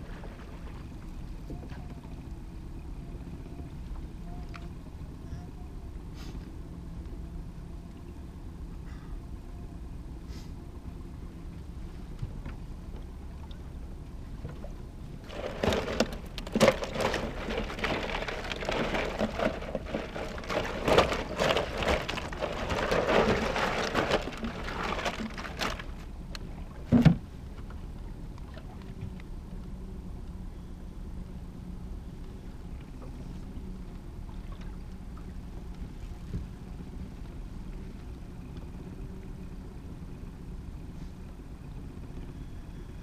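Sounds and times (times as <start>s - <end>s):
boat motor humming: 0.0s - 43.0s
gear rustling and clattering: 15.2s - 26.1s.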